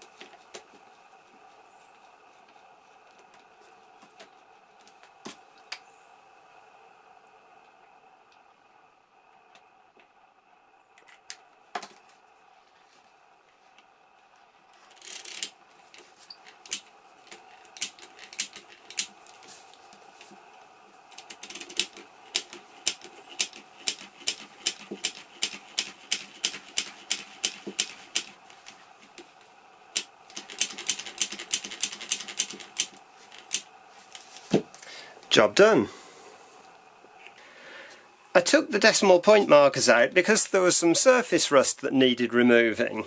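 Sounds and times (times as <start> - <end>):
sharp metallic clicks: 16.6 - 19.1, 21.1 - 28.4, 30.0 - 33.7.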